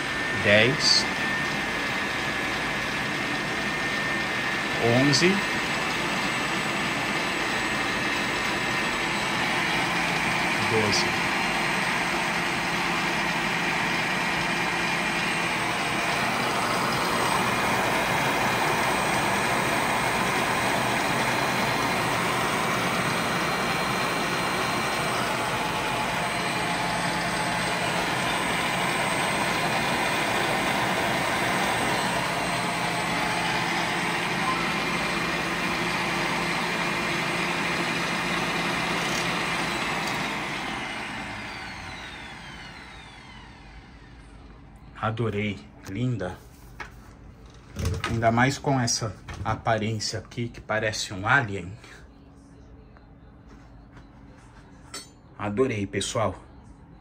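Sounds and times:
stand mixer motor whirring: 0.0 - 44.8.

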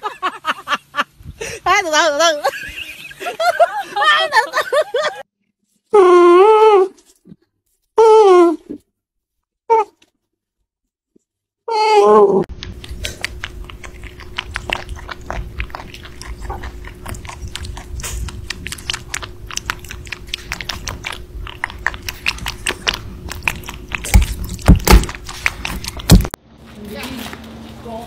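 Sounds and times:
faint steady hum: 12.5 - 26.4
rabbit chewing: 12.5 - 26.4.

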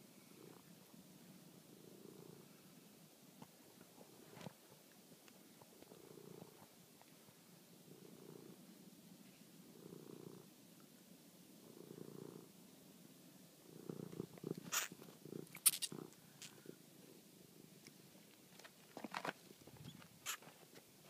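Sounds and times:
cat purring: 0.2 - 2.7, 5.6 - 6.8, 7.8 - 8.7, 9.6 - 10.5, 11.6 - 12.6, 13.6 - 17.8.

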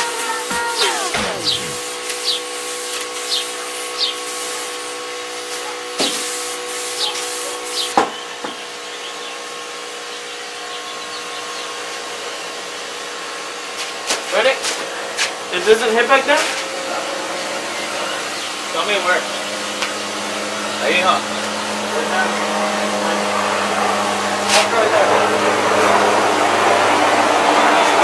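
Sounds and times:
spray gun hissing: 0.0 - 7.9
steady machine hum: 0.0 - 13.6, 14.9 - 28.0.

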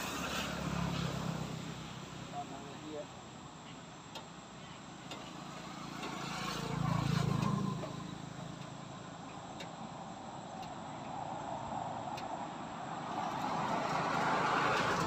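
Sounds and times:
vehicle passing by: 0.0 - 3.0, 5.3 - 8.6, 12.8 - 15.0.

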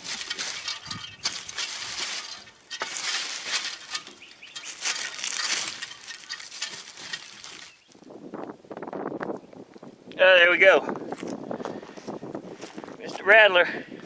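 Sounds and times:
boots crunching through dry leaves: 0.0 - 7.9.

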